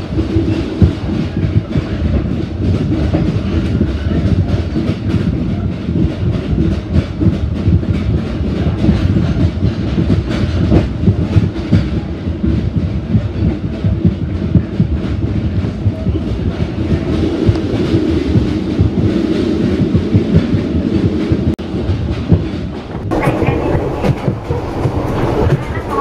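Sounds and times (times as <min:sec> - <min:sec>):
train rumbling: 0:00.0 - 0:26.0
wheels clattering on rails: 0:00.0 - 0:26.0.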